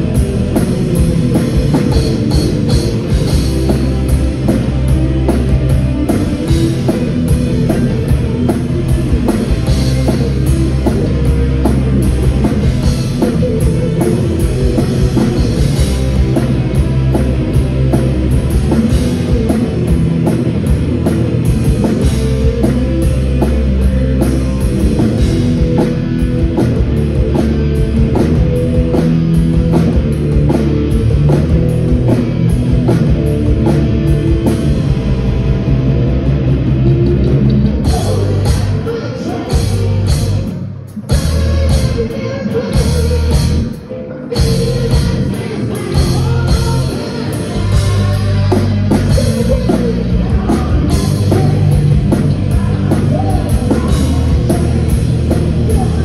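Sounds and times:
drum kit beat: 0.0s - 43.8s, 44.4s - 56.0s
electric guitars: 0.0s - 56.0s.

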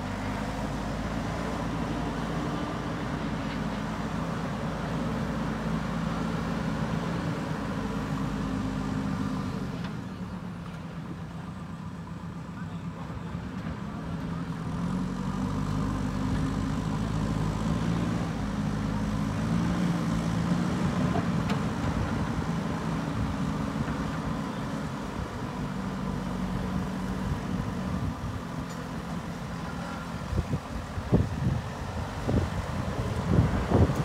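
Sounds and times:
diesel engine running: 0.0s - 34.0s.

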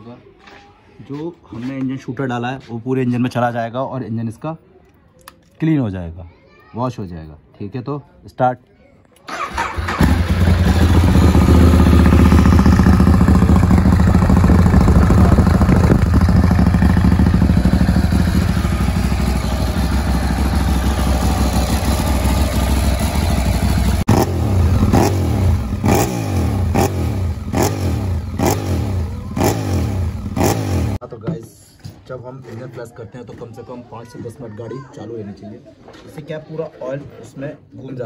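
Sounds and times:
motorcycle engine revving: 9.3s - 31.0s.

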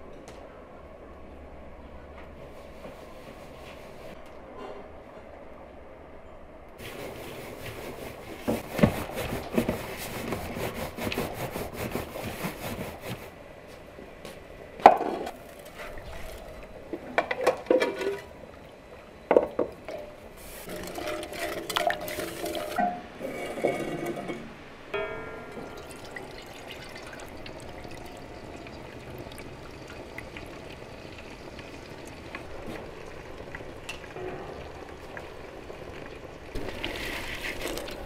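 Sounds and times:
metal pots and ladle clattering: 14.9s - 18.4s, 19.4s - 28.8s
hands rustling grainy mixture: 36.6s - 38.0s.

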